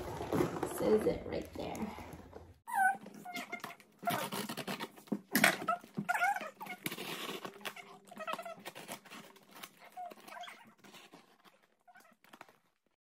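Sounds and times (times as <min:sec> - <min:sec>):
tape squeaking: 0:01.8 - 0:13.0
plastic wrapping crinkling: 0:03.2 - 0:13.0.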